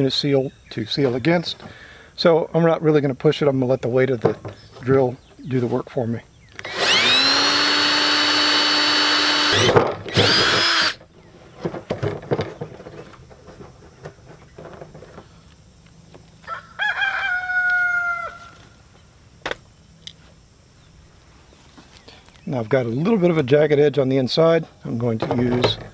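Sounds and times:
cordless drill motor whine: 6.5s - 11.1s.

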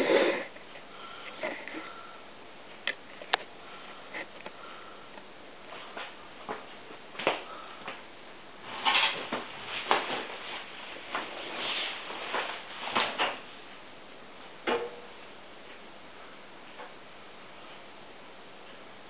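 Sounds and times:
fabric rustling: 8.6s - 13.4s.

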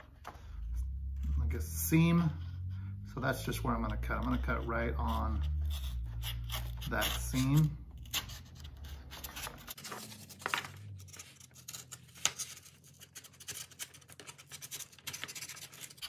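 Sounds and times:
knife cutting paper egg tray: 3.7s - 10.6s, 11.2s - 16.0s.

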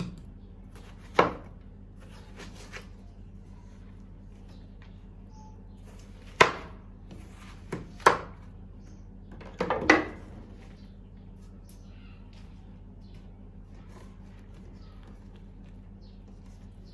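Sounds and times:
steady low hum: 0.0s - 16.9s
knife chopping on wooden board: 6.3s - 6.8s.

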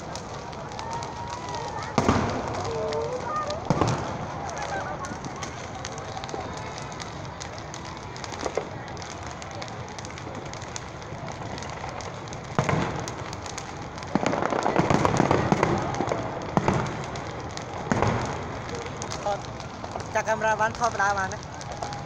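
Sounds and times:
firework bang: 0.0s - 20.2s
crackling firework bursts: 0.0s - 22.0s.

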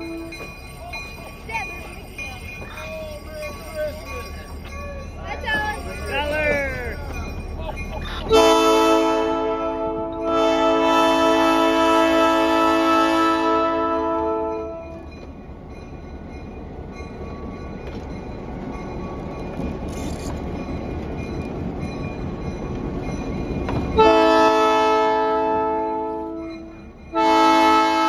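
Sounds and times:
locomotive horn chord: 0.0s - 0.5s, 8.3s - 15.0s, 24.0s - 28.0s
train rumbling by: 0.0s - 28.0s.

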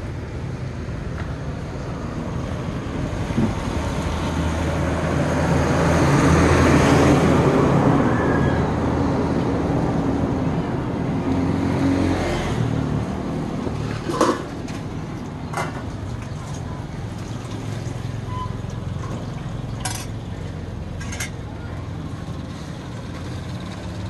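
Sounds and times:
vehicle engine passing by: 1.8s - 15.2s.

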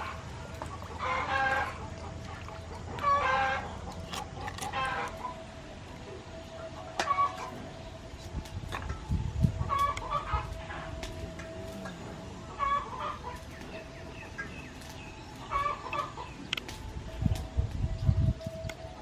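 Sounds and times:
chickens clucking: 0.0s - 5.4s, 6.4s - 7.6s, 8.8s - 10.8s, 11.4s - 16.8s.

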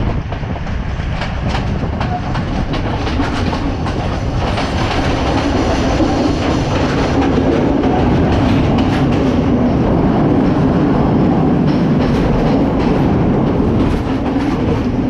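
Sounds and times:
train rumbling on track: 0.0s - 15.0s
wheels clicking over rail joints: 0.0s - 15.0s.

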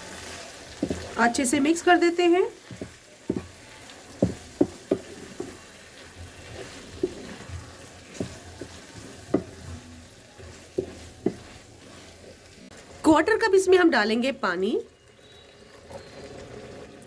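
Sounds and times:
spatula stirring in frying pan: 0.0s - 13.8s
faint sizzle of frying: 0.0s - 17.0s
spatula knocking against pan: 2.6s - 7.5s, 8.1s - 9.8s, 10.4s - 11.6s.

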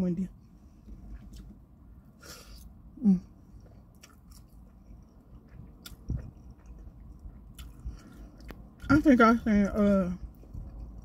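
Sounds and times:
chewing fries: 3.5s - 11.0s.

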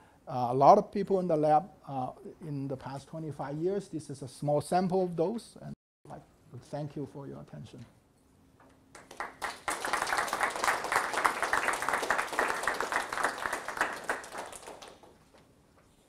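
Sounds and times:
audience applauding: 8.9s - 15.2s.

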